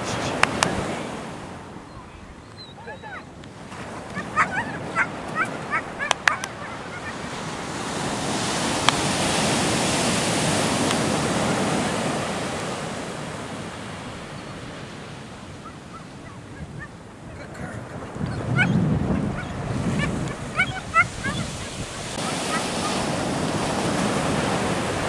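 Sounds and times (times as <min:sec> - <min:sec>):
surf breaking on a beach: 0:00.0 - 0:25.0
sharp clicks: 0:06.1 - 0:06.6.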